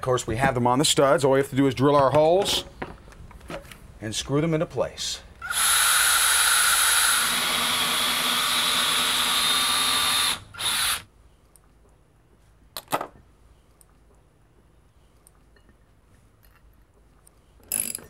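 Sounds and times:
cordless drill running: 5.4s - 11.0s.

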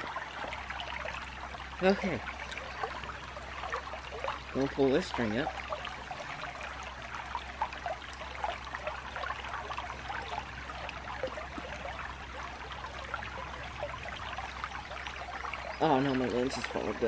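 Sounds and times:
shallow creek trickling: 0.0s - 17.0s.

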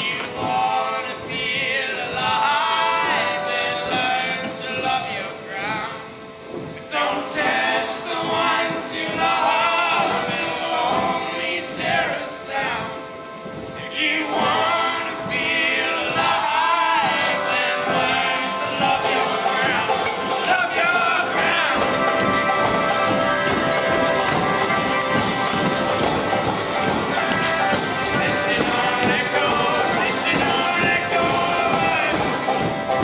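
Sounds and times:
accordion: 0.0s - 33.0s
acoustic guitar: 0.0s - 33.0s
banjo: 0.0s - 33.0s
voices singing: 0.0s - 33.0s
upright bass: 13.9s - 33.0s.

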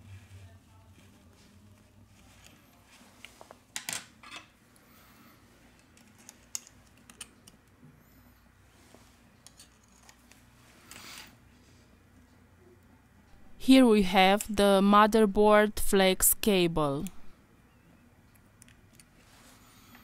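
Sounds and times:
metal tweezers clicking and scraping: 5.8s - 7.6s, 9.4s - 10.3s.

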